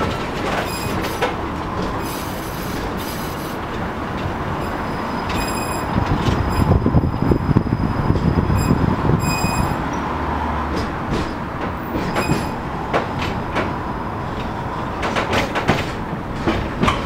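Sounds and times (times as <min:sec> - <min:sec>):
tram rumbling along track: 0:00.0 - 0:17.0
wheels clicking and knocking: 0:14.4 - 0:17.0.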